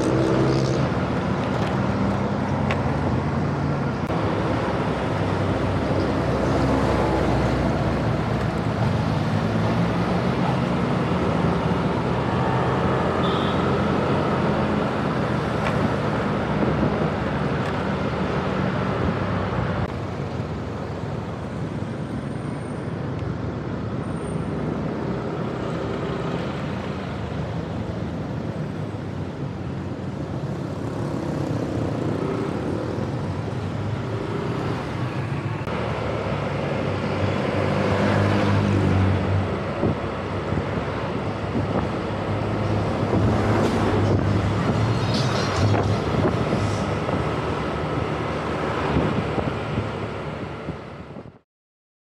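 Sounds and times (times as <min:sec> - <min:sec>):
vehicle engine and road noise: 0:00.0 - 0:51.4.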